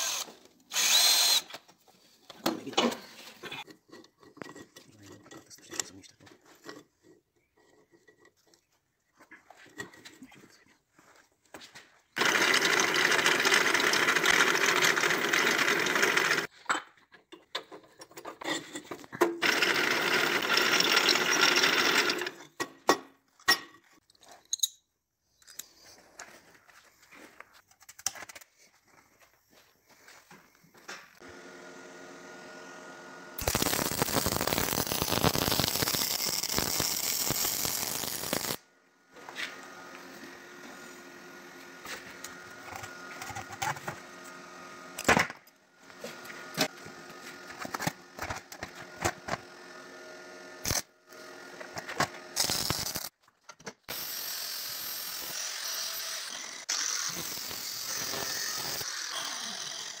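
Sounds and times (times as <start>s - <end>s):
angle grinder cutting steel: 0.0s - 1.5s, 19.4s - 22.4s, 31.3s - 38.6s, 49.8s - 53.1s, 53.9s - 60.0s.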